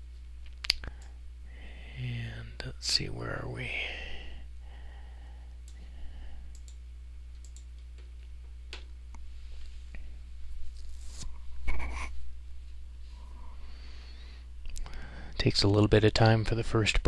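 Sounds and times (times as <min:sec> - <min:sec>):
low electrical hum: 0:00.0 - 0:17.0
computer mouse clicks: 0:06.5 - 0:08.1.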